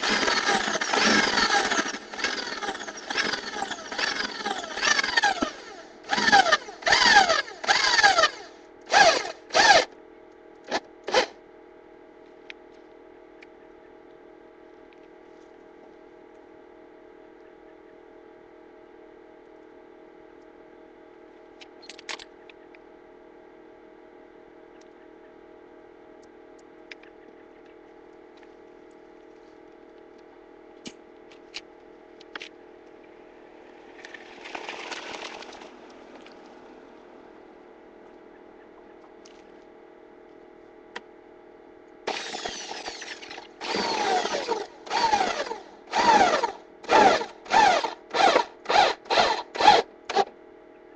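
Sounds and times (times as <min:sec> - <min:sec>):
power drill whining: 0:00.0 - 0:09.9, 0:42.1 - 0:50.3
steady low hum: 0:00.0 - 0:50.9.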